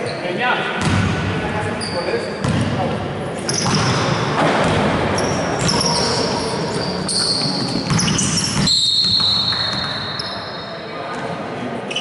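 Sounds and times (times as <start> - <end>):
basketball bouncing on court: 0.8 - 1.3, 2.4 - 2.8, 3.5 - 6.1, 7.2 - 10.1
sneakers squeaking: 1.7 - 10.8.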